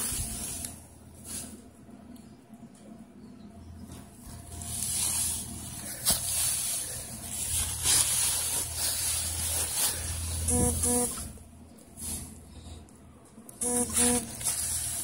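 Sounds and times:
dry hay rustling: 0:00.0 - 0:01.7, 0:04.2 - 0:11.4, 0:13.8 - 0:15.0.

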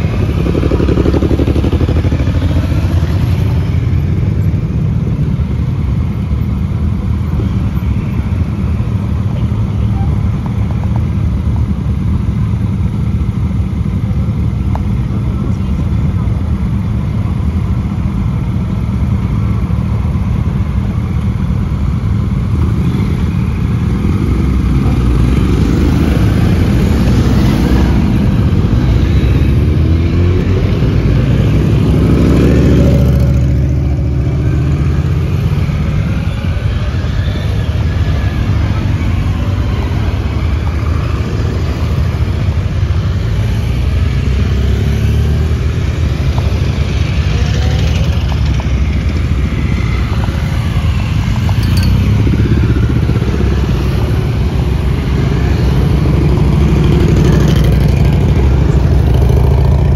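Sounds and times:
motorcycle passing close: 0:00.0 - 0:04.7, 0:22.6 - 0:59.9
motorcycle engines pulling away: 0:00.0 - 0:59.9.

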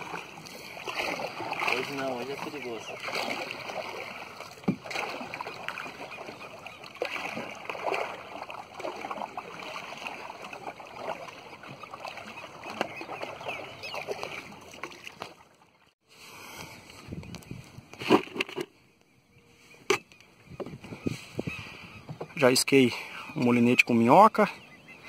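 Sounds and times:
oars splashing in water: 0:00.0 - 0:15.9.

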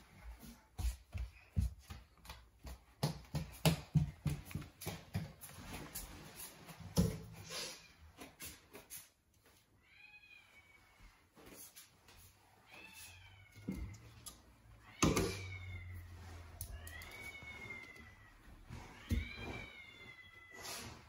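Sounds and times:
quick run of taps: 0:00.8 - 0:05.3.

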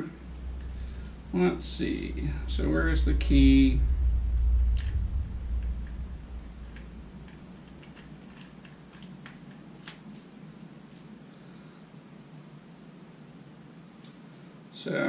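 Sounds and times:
low rumble: 0:00.0 - 0:09.5.

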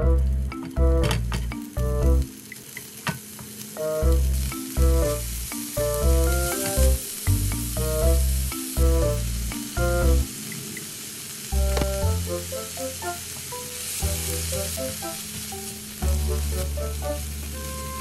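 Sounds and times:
background music with bass: 0:00.0 - 0:02.3, 0:03.8 - 0:10.4, 0:11.6 - 0:13.2, 0:14.0 - 0:15.3, 0:16.0 - 0:18.0
food sizzling in a pan: 0:00.4 - 0:18.0.

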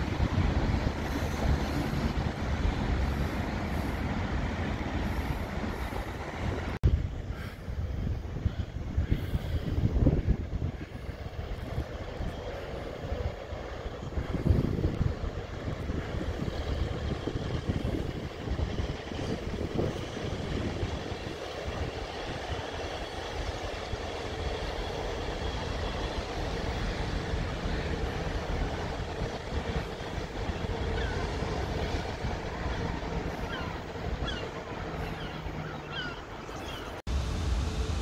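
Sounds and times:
train wheels rumbling on rail: 0:00.0 - 0:38.0
birds chirping: 0:29.6 - 0:37.0.

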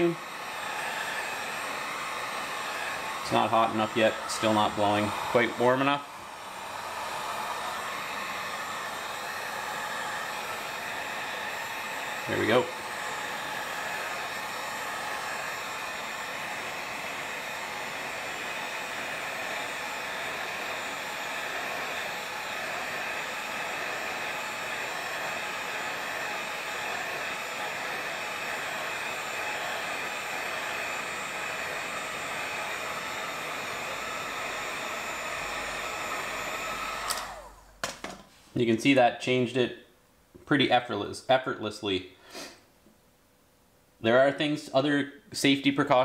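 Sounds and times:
heat gun blowing hot air: 0:00.0 - 0:38.3, 0:42.2 - 0:42.6
heat gun switch click: 0:37.0 - 0:38.2.

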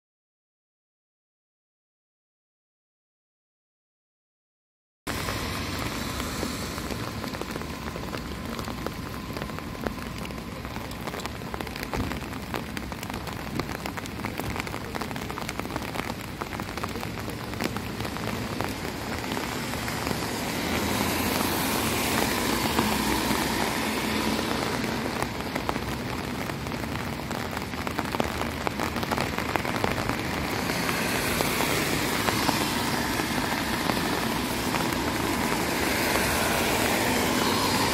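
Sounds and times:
rain pattering on street: 0:05.1 - 0:37.9
traffic hissing on wet road: 0:05.1 - 0:37.9.

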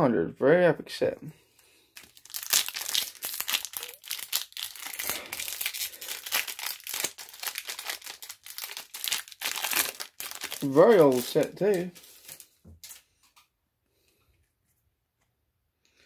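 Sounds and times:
foil pack crinkling and tearing: 0:02.0 - 0:13.1.

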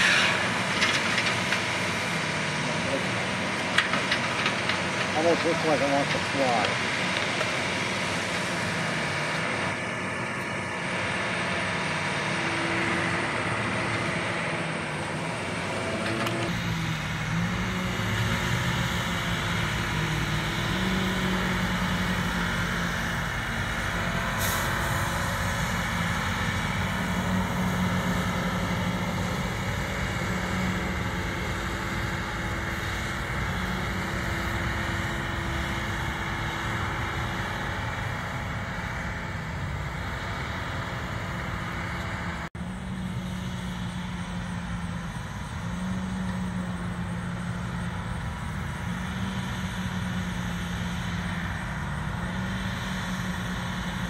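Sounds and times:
crop sprayer diesel engine running: 0:00.0 - 0:54.0.

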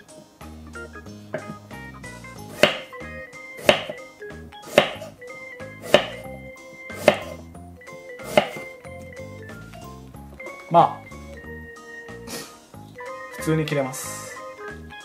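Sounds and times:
background music: 0:00.0 - 0:15.0
knife chopping on cutting board: 0:02.5 - 0:02.9, 0:03.6 - 0:04.0, 0:04.6 - 0:05.2, 0:05.8 - 0:06.2, 0:06.9 - 0:07.4, 0:08.2 - 0:08.7.

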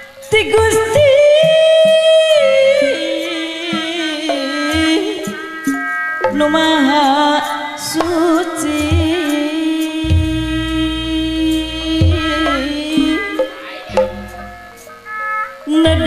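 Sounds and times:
woman singing long wavering notes: 0:00.0 - 0:05.6, 0:06.2 - 0:14.8, 0:15.7 - 0:16.0
sharp percussion strikes: 0:03.2 - 0:16.0
band accompaniment: 0:10.1 - 0:15.6.

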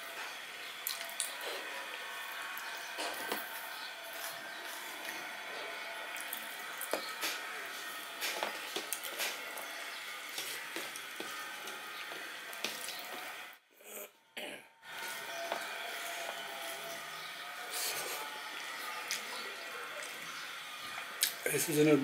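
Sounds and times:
fingers mixing food on metal plate: 0:02.6 - 0:13.4.

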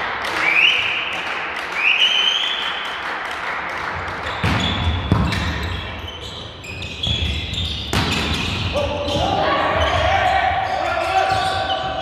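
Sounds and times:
shoe squeaks: 0:04.2 - 0:12.0.

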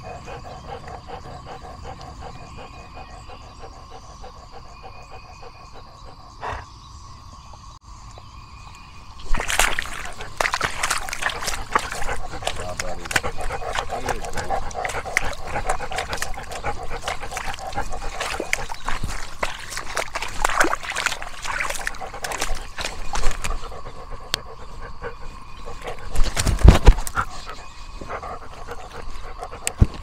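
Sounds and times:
dog clicks and scuffles: 0:09.2 - 0:23.8, 0:25.7 - 0:27.6.

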